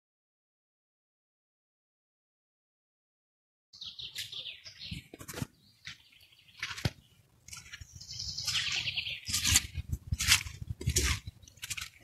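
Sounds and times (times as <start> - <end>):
nightingale singing trills: 3.8 - 9.8.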